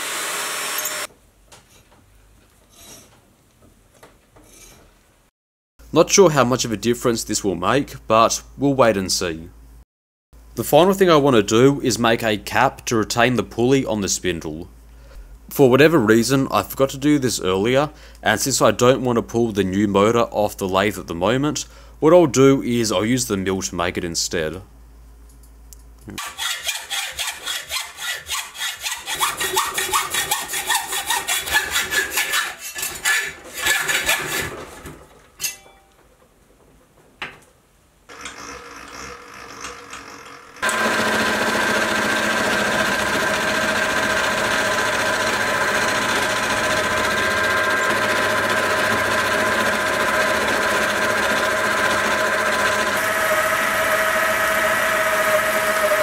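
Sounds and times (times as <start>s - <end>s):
hacksaw cutting metal: 0.0s - 1.1s, 26.2s - 34.7s, 38.1s - 56.0s
milling machine whining: 0.0s - 1.1s, 38.1s - 56.0s.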